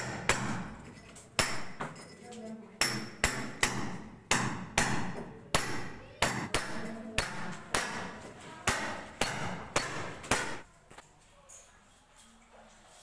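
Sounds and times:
hammer striking steel chisel: 0.0 - 2.1, 2.8 - 10.6.

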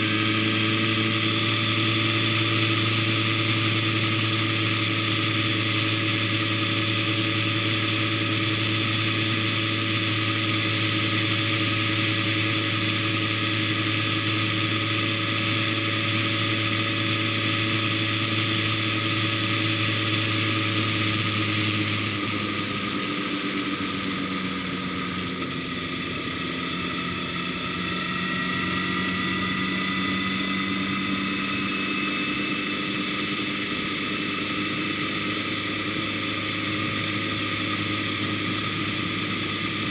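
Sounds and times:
high hiss: 0.0 - 25.3
vehicle engine running: 0.0 - 33.5.

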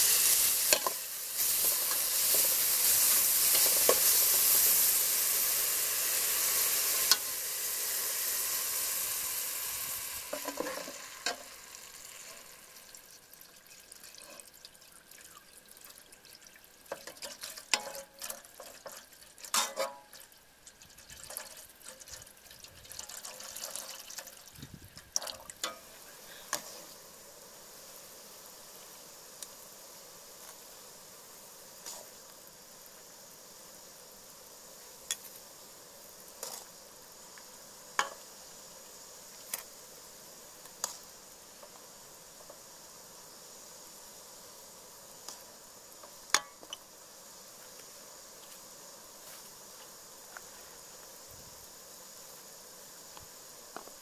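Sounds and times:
water pouring into a metal pot: 0.0 - 26.5
faint steady hiss: 0.0 - 54.0.

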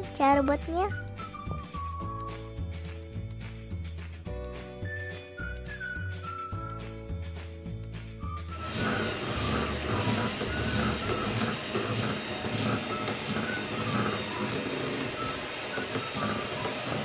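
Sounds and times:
electric hand mixer whirring: 8.5 - 17.0
beaters scraping steel bowl: 8.6 - 17.0.

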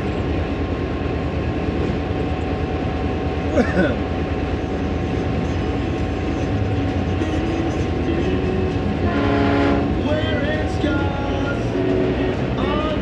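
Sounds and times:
diesel locomotive engine drone: 0.0 - 13.0
wheels rumbling on rail: 0.0 - 13.0
locomotive horn: 5.4 - 12.9.

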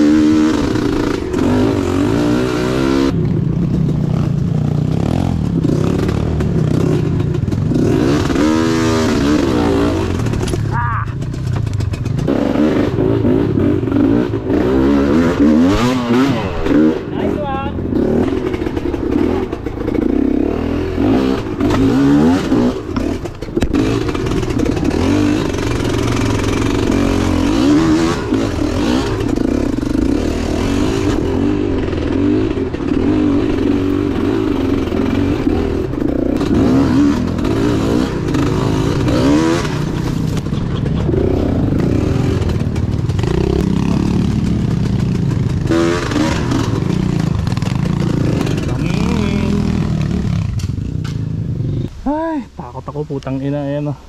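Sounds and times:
dirt bike engine revving: 0.0 - 52.1.

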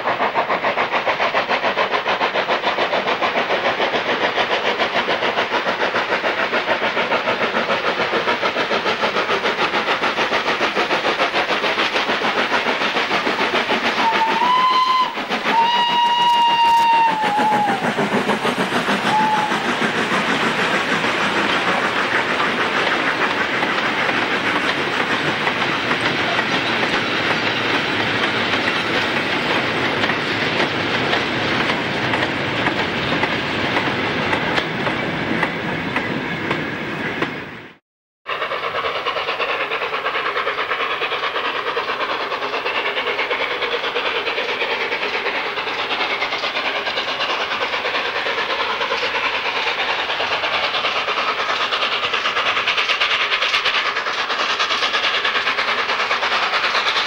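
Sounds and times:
train wheels clattering over rail joints: 0.0 - 37.4, 38.3 - 57.0
steam locomotive approaching: 0.0 - 57.0.

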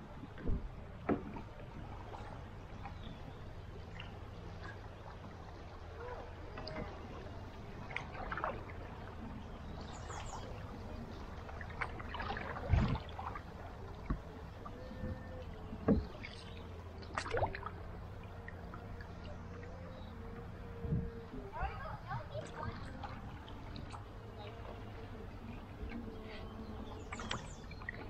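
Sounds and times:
paddle strokes splashing: 0.0 - 28.0
river current wash: 0.0 - 28.0
thumps against canoe: 0.4 - 1.5, 15.8 - 16.4.

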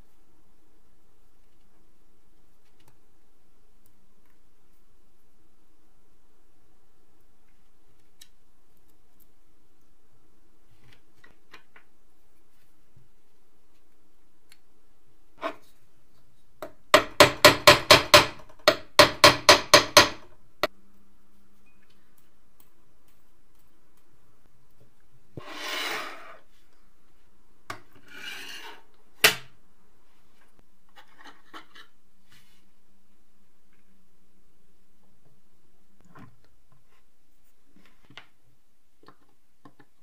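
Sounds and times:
hammer tapping metal: 17.0 - 20.3
brief scraping rub: 25.4 - 26.5.

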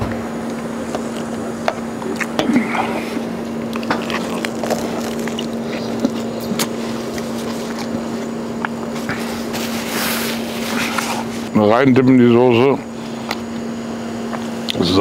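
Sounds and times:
machine hum: 0.0 - 15.0
eating clicks: 3.5 - 7.9
paper napkin rustle: 8.9 - 11.5.

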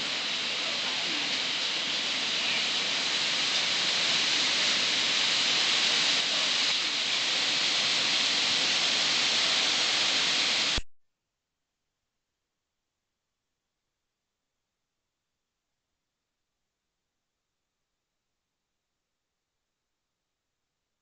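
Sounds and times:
heavy rain falling on trees: 0.0 - 10.8.

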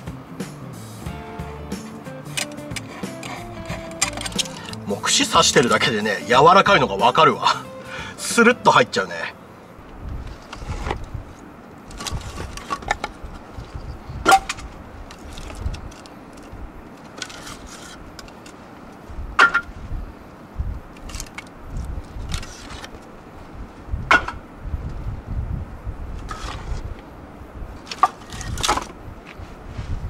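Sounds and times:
firewood knocking and clattering: 14.2 - 19.8, 24.1 - 24.4, 27.8 - 29.0.

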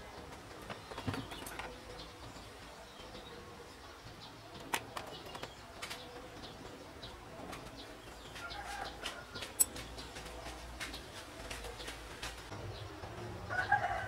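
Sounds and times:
birds calling: 0.0 - 14.0
small parts clicking and tapping: 9.0 - 12.4.

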